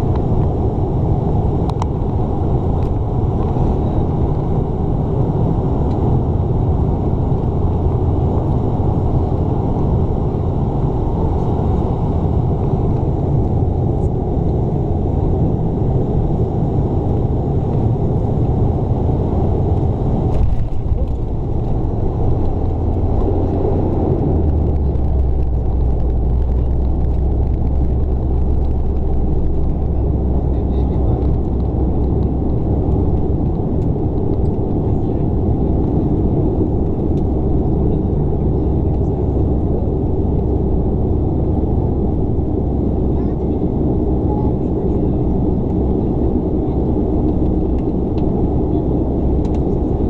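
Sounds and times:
propeller drone: 0.0s - 50.0s.

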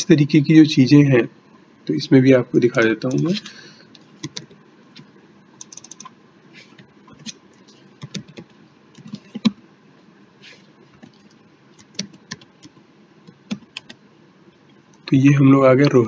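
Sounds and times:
computer keyboard typing: 4.2s - 6.1s, 8.0s - 9.6s, 11.0s - 14.0s.

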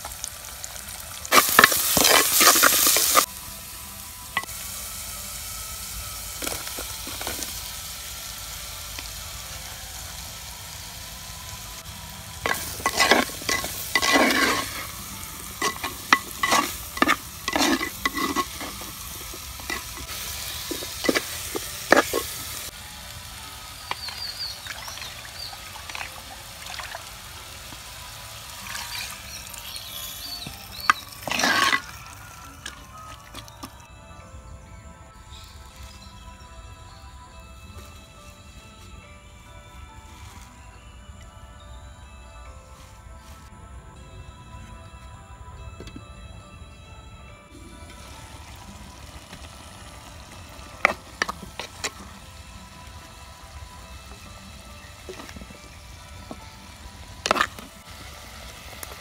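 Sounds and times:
onions sizzling in a clay pot: 0.0s - 33.9s, 47.5s - 59.0s.

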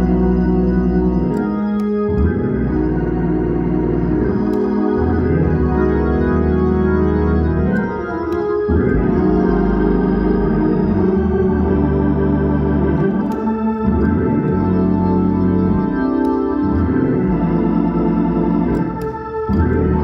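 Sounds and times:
organ sustained chords: 0.0s - 20.0s.

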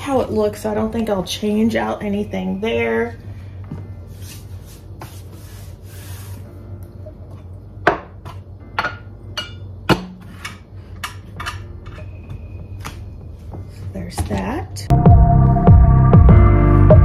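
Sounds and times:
low steady hum: 0.0s - 17.0s
objects knocking on countertop: 7.8s - 9.0s.

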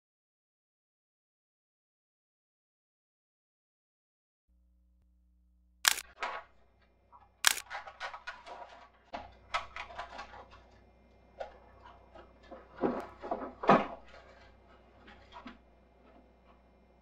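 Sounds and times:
faint steady hum: 4.5s - 17.0s
camera clicks: 5.9s - 6.3s, 7.4s - 7.7s
handling noises: 5.9s - 17.0s.

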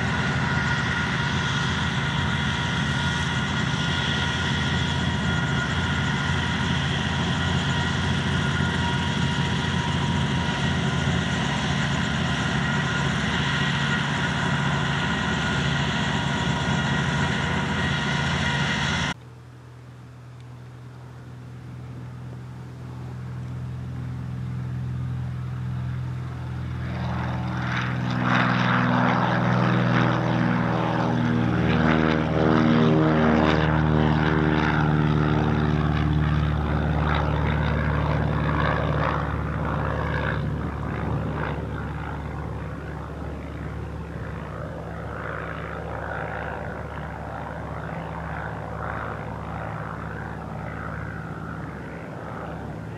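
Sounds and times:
propeller plane taking off: 0.0s - 52.9s.

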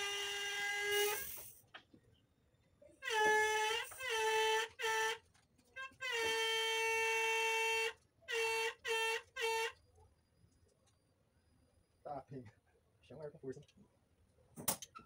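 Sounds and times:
loud horn honking: 3.0s - 5.2s, 5.8s - 9.8s.

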